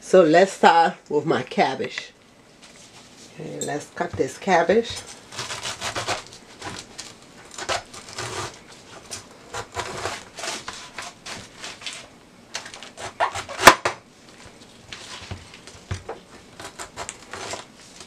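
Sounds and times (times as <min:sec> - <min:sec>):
knife cutting cabbage: 0:05.0 - 0:13.9, 0:16.3 - 0:17.7.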